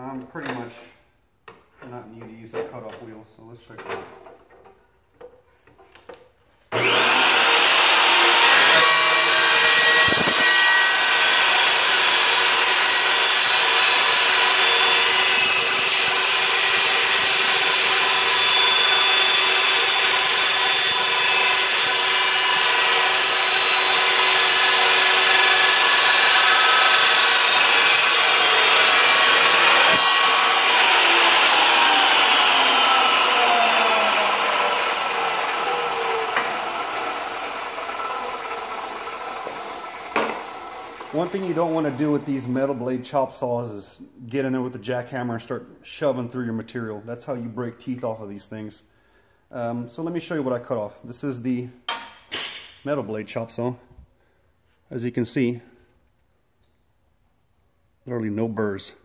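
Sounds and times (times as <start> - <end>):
chop saw cutting steel: 6.7 - 42.9.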